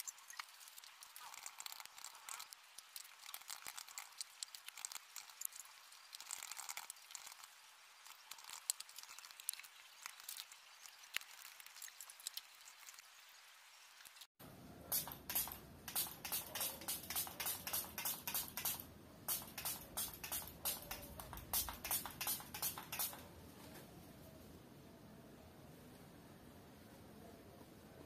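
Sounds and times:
typing on laptop keyboard: 15.0s - 23.3s.

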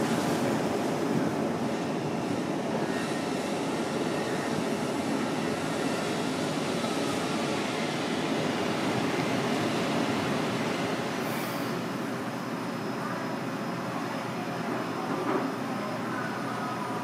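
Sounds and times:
hiss: 11.2s - 11.8s.

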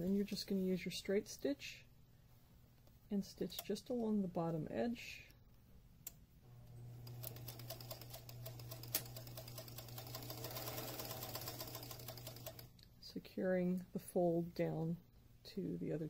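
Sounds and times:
sewing machine motor humming: 6.9s - 12.7s
needle ticking rapidly: 7.2s - 12.7s.

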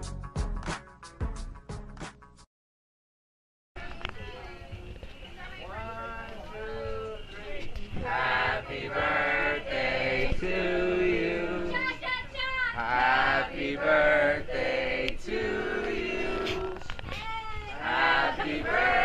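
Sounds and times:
several voices singing: 5.7s - 12.1s, 12.7s - 17.0s, 17.7s - 19.0s.

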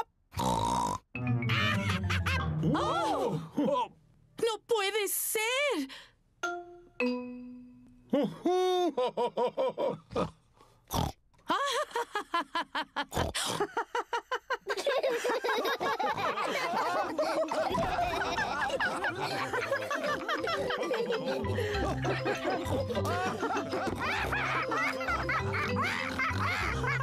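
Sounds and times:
cartoon pigs laughing: 1.4s - 3.4s, 11.6s - 27.0s.

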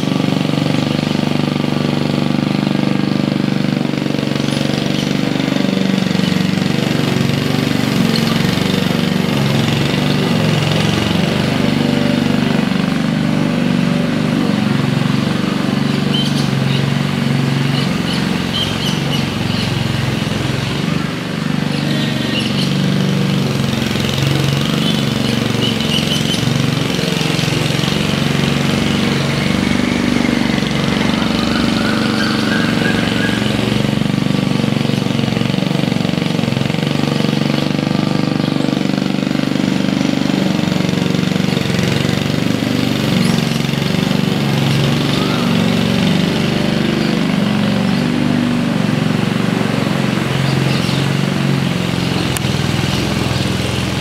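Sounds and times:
lawn mower engine running: 0.0s - 54.0s.

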